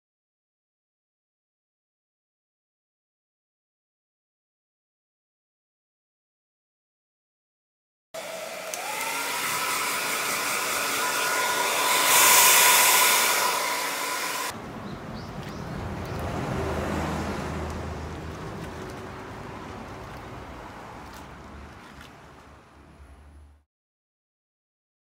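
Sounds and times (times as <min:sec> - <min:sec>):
hair dryer running: 0:08.2 - 0:14.6.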